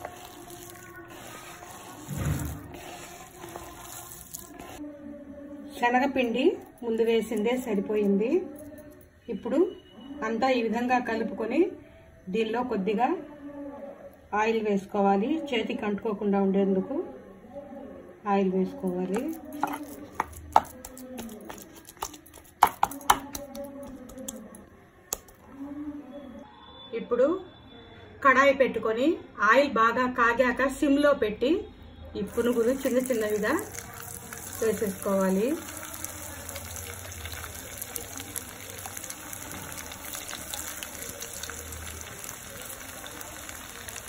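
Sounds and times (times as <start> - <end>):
wet squishing of batter: 0.0 - 4.8, 19.0 - 25.5, 32.3 - 44.0
fritters frying in oil: 32.3 - 44.0.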